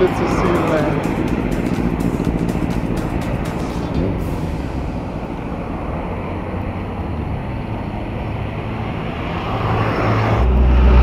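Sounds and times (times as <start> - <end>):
car engine hum: 0.0 - 11.0
tyre and road noise: 0.0 - 11.0.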